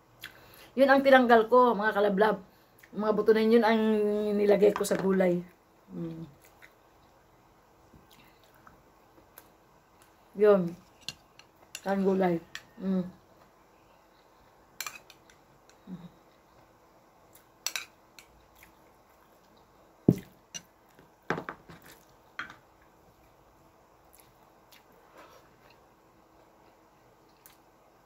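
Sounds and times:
soft chewing: 0:06.0 - 0:07.3, 0:07.9 - 0:11.8, 0:18.2 - 0:21.0, 0:21.8 - 0:27.8.

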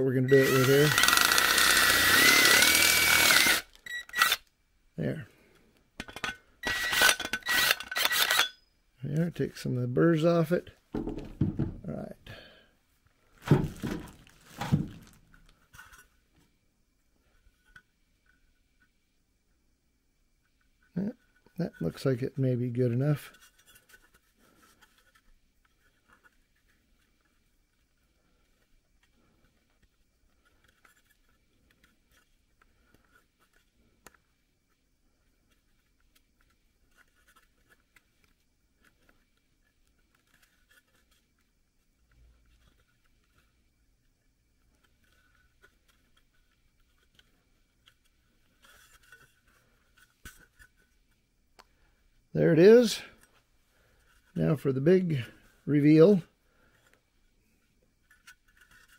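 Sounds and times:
handling thump: 0:10.9 - 0:11.9, 0:13.4 - 0:15.2
faint clicks and rubs: 0:20.4 - 0:52.0, 0:56.6 - 0:58.9.

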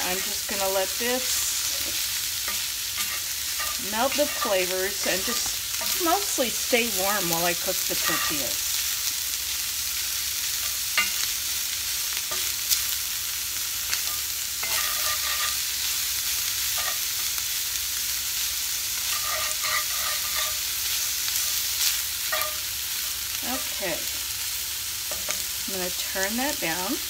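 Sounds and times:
wooden spatula scraping a pan: 0:00.0 - 0:06.2, 0:07.9 - 0:08.6, 0:14.1 - 0:15.6, 0:19.0 - 0:21.6
meat sizzling in a skillet: 0:00.0 - 0:27.0.

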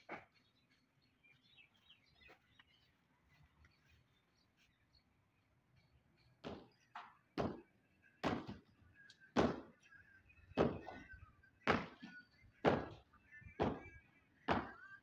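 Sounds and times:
footsteps on hard ground: 0:01.6 - 0:04.8.

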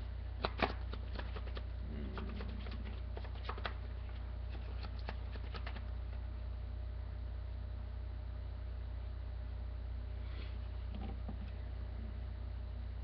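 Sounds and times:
low electrical hum: 0:00.0 - 0:13.0
cards being shuffled: 0:00.4 - 0:05.9.

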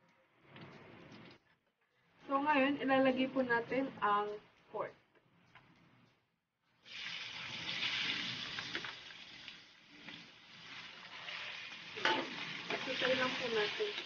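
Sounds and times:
meat sizzling in hot oil: 0:06.8 - 0:14.0
metal spatula knocking wok: 0:12.0 - 0:14.0.

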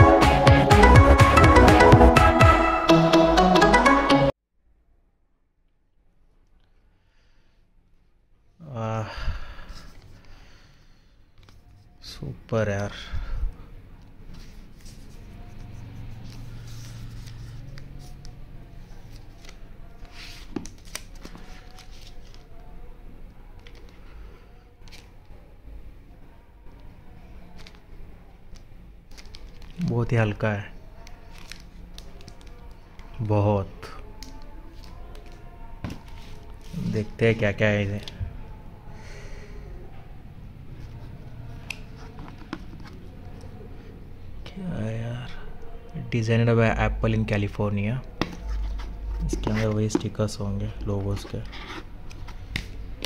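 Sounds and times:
cardboard and paper rustling: 0:18.9 - 0:22.7, 0:31.1 - 0:32.8, 0:34.1 - 0:38.2, 0:48.2 - 0:50.2.

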